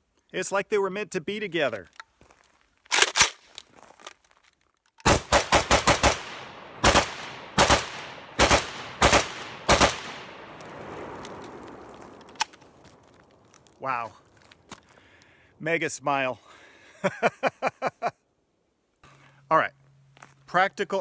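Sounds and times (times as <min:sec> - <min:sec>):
pistol gunshots with echo: 0:05.0 - 0:11.5.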